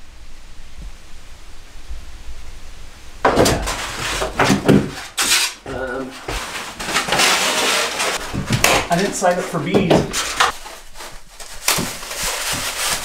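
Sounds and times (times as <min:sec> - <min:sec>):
knocks on ceiling panels: 0:03.2 - 0:05.4, 0:06.1 - 0:10.5
rustling and scraping of panels: 0:03.2 - 0:13.0.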